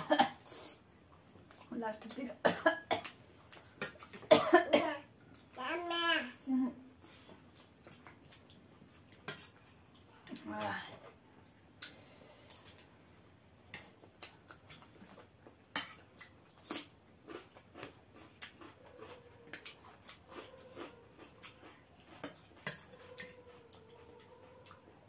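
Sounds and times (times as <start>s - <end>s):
chewing and mouth smacks: 0.9s - 1.7s, 3.0s - 4.3s, 7.2s - 10.4s, 11.1s - 13.0s, 13.6s - 25.0s.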